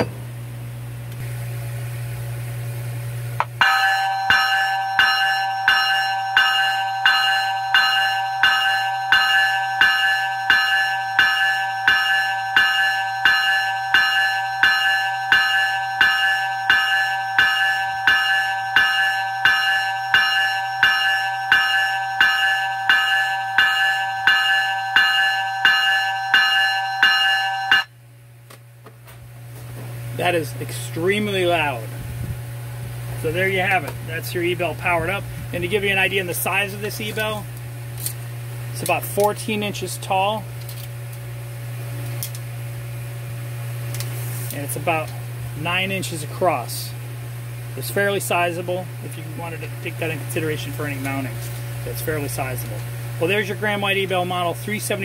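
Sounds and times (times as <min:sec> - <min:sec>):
steady low hum: 0:00.0 - 0:55.0
locomotive bell ringing: 0:03.5 - 0:28.0, 0:33.2 - 0:37.5, 0:47.8 - 0:55.0.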